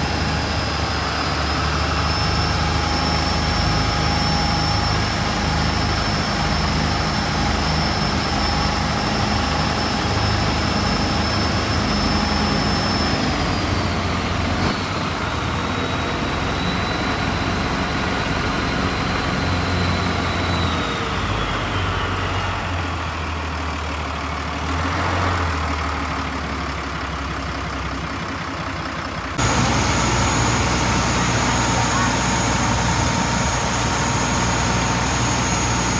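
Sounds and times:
high turbo whine: 0.0s - 27.1s, 29.2s - 35.9s
diesel boat engine drone: 0.0s - 35.9s.

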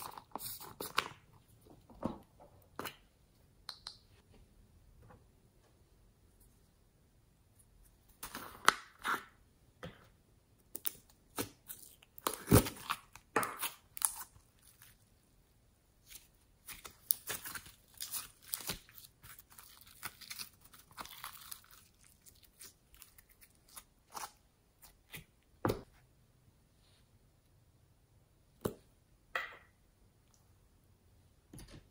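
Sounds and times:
slime crackling and tearing: 10.7s - 15.0s, 16.1s - 24.4s.

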